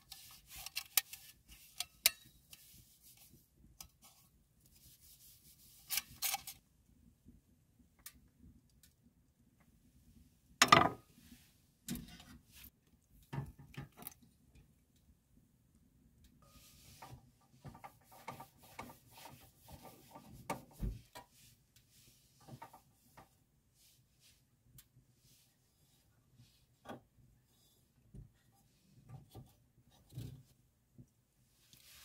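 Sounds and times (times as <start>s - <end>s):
tissue rubbing metal: 4.7s - 6.5s.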